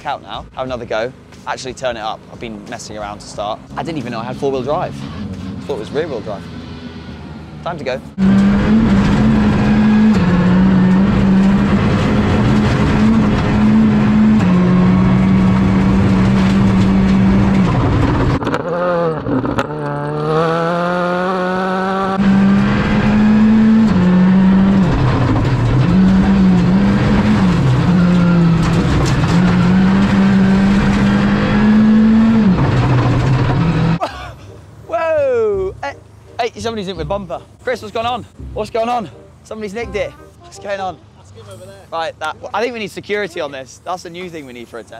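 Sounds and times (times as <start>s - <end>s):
rally car engine revving: 3.0s - 34.0s.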